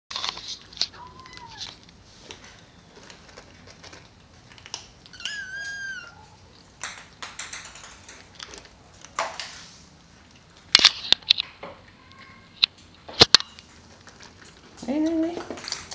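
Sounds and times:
kittens mewing: 0:00.9 - 0:01.8, 0:05.0 - 0:06.6.

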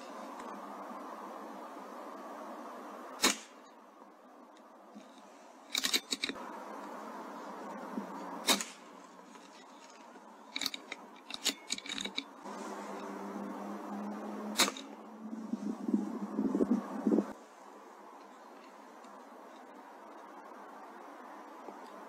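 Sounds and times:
air rifle shot: 0:03.2 - 0:03.6, 0:08.4 - 0:08.9, 0:14.6 - 0:14.9
metallic clicks of rifle action: 0:05.0 - 0:06.4, 0:08.5 - 0:12.3.

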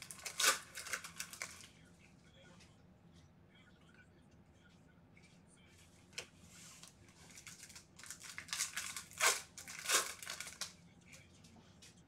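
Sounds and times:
foil wrapper tearing and crinkling: 0:00.0 - 0:01.7, 0:07.3 - 0:10.8.

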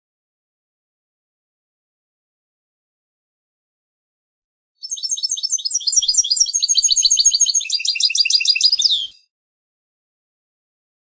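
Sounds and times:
goldfinch twittering song: 0:04.8 - 0:09.3.

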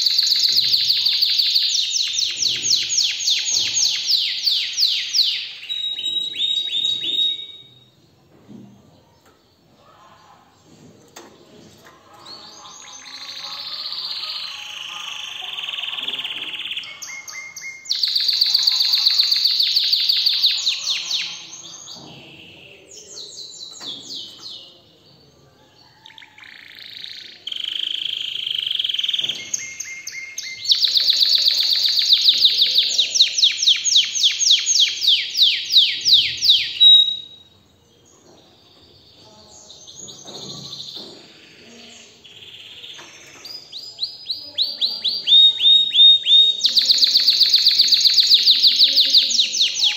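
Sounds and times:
canary singing trills: 0:00.0 - 0:08.0, 0:12.0 - 0:49.9.

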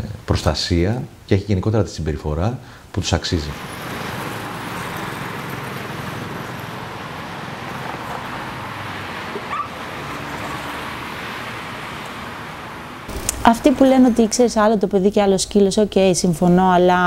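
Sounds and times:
outdoor background hiss: 0:00.0 - 0:17.0
dog whining: 0:09.3 - 0:09.8.

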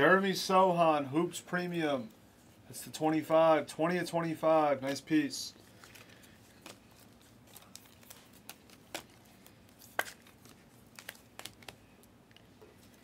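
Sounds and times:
trading cards sliding and snapping: 0:05.8 - 0:12.1.

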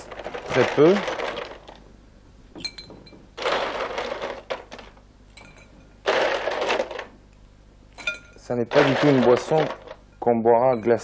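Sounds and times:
ice rattling and liquid swishing: 0:00.0 - 0:01.8, 0:03.4 - 0:04.9, 0:06.0 - 0:07.1, 0:08.4 - 0:10.0
ice clinking in glass bowl: 0:08.0 - 0:11.0.

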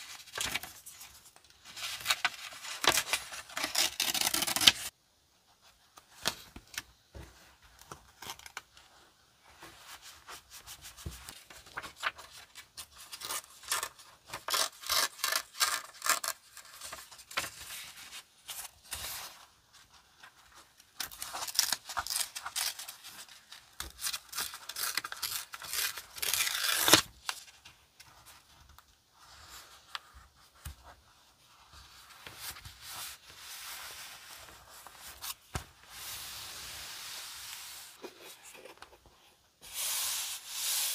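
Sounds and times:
paper rustling and crinkling: 0:00.0 - 0:04.9, 0:09.5 - 0:39.2.

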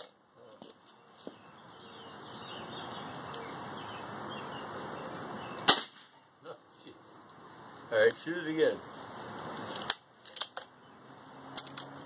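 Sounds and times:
steady low hiss: 0:00.0 - 0:11.6
air rifle shot: 0:05.6 - 0:06.1.

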